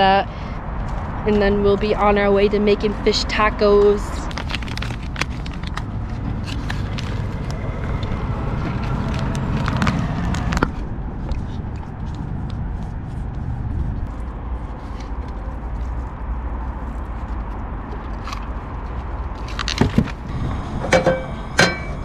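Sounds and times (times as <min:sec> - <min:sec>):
wind rumble on microphone: 0:00.0 - 0:22.0
plastic bag crinkling: 0:04.3 - 0:07.5.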